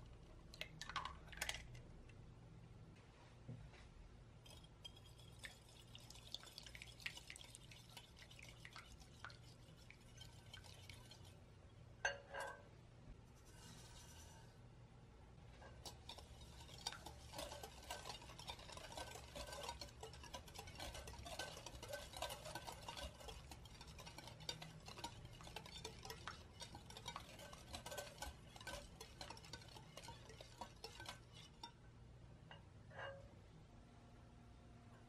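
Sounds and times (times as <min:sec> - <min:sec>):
wire whisk clinking against glass bowl: 0:04.4 - 0:11.4, 0:15.8 - 0:31.8.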